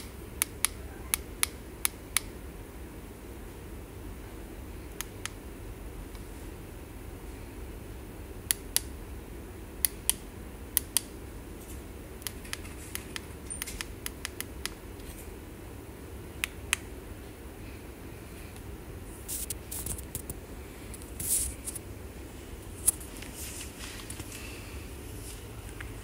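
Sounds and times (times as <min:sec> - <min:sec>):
low room hum: 0:00.0 - 0:26.0
remote control buttons clicking: 0:12.2 - 0:15.1.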